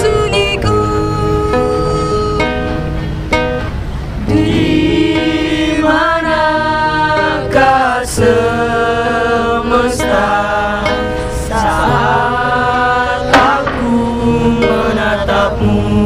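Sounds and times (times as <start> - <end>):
voices singing together: 4.2 - 16.0
plucked string phrase: 10.8 - 15.7.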